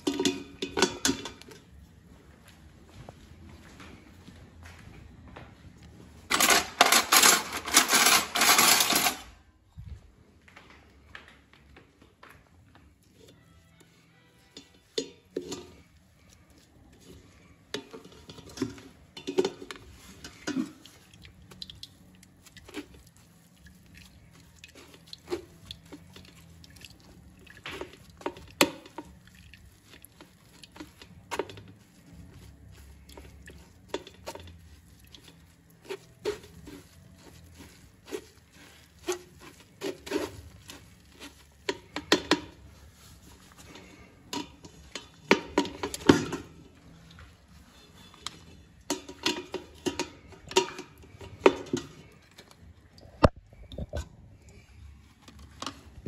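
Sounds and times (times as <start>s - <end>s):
spoon scraping mesh strainer: 6.3s - 9.2s, 14.3s - 52.4s.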